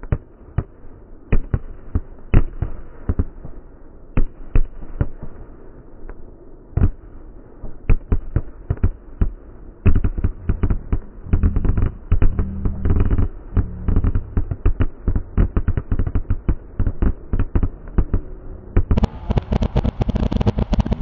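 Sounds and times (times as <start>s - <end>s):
fireworks booming: 7.9s - 21.0s.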